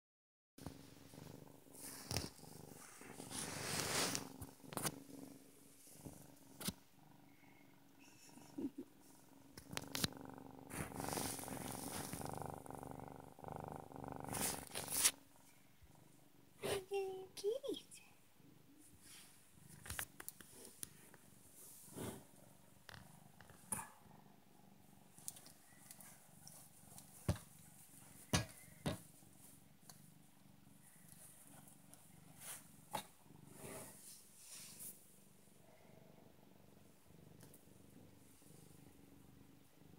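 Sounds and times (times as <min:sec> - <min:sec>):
cat purring: 0:00.6 - 0:39.9
rustling: 0:01.5 - 0:06.8, 0:10.7 - 0:12.4, 0:14.3 - 0:15.2, 0:24.9 - 0:35.3.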